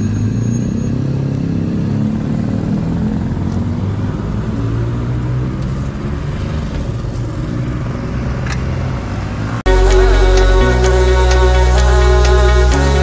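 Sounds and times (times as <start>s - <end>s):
motorcycle engines at low revs: 0.0s - 9.6s.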